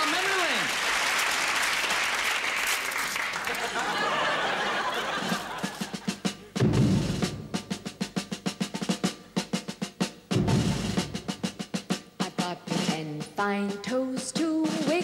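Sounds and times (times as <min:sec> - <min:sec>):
applause: 0:00.0 - 0:04.1
drum kit playing: 0:03.7 - 0:15.0
bass drum hits: 0:06.6 - 0:07.7, 0:10.3 - 0:11.4.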